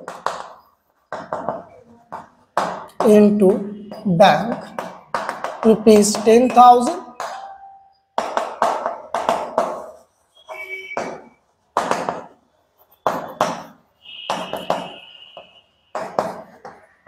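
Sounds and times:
chalk squeak: 0:09.9 - 0:11.6.

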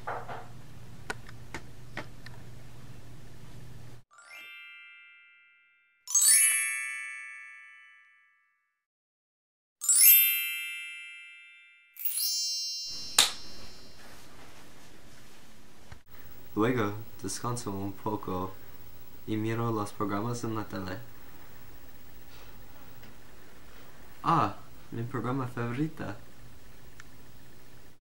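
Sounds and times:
faint room hum: 0:00.0 - 0:04.0, 0:12.9 - 0:28.0
bell-like dings: 0:04.1 - 0:08.5, 0:09.8 - 0:14.0.

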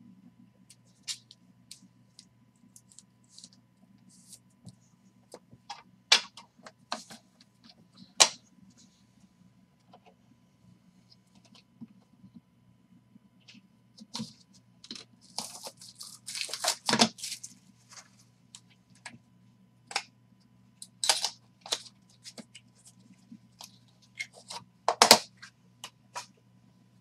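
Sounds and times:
faint steady hum: 0:00.0 - 0:27.0
cardboard and plastic rustling: 0:14.1 - 0:18.2
knife slicing packaging: 0:15.3 - 0:17.5
packaging tearing: 0:15.3 - 0:17.5.

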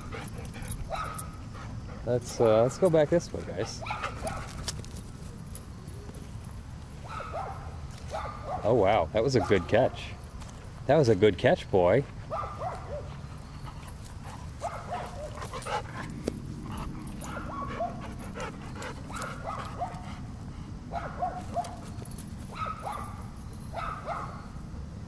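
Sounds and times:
dogs whining and yipping: 0:00.0 - 0:02.0, 0:12.3 - 0:20.3, 0:20.9 - 0:24.6.

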